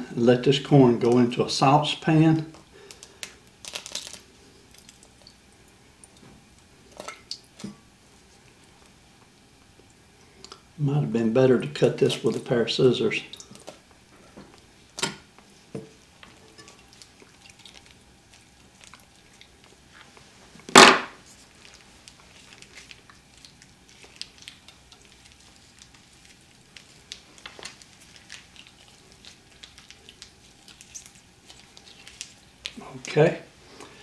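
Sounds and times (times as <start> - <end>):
plastic pouch crinkling and squelching: 2.8 - 5.3, 16.8 - 20.0, 21.2 - 33.2
sharp knock: 20.7 - 21.2.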